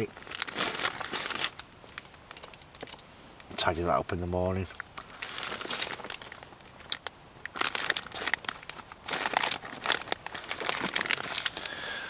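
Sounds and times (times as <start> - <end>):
food pouch crinkling: 0.0 - 2.1, 5.0 - 11.8.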